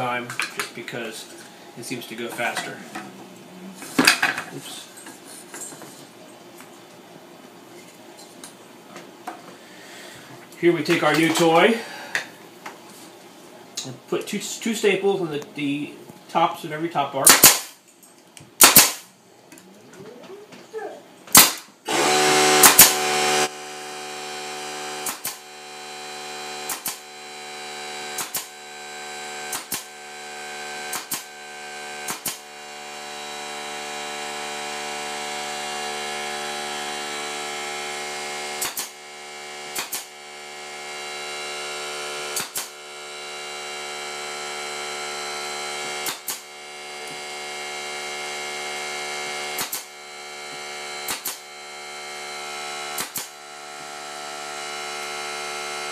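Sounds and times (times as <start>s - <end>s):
pneumatic stapler shots: 17.2s - 17.8s, 18.6s - 19.1s, 21.3s - 23.4s, 24.9s - 25.5s, 26.5s - 27.1s, 28.0s - 28.6s, 29.4s - 29.9s, 30.8s - 31.4s, 32.0s - 32.5s, 38.5s - 39.0s, 39.7s - 40.2s, 42.2s - 42.8s, 45.9s - 46.5s, 49.5s - 50.0s, 51.0s - 51.5s, 52.9s - 53.4s
air compressor humming: 21.3s - 55.9s.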